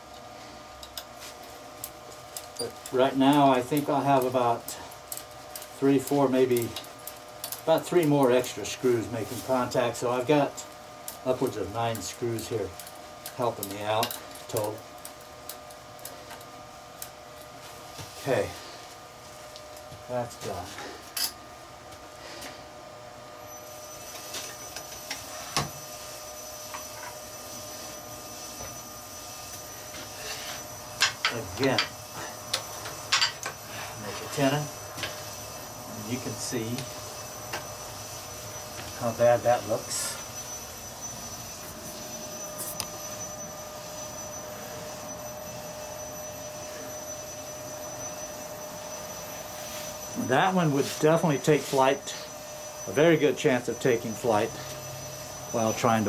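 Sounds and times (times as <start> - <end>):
wood lathe motor whine: 21.9 - 56.0.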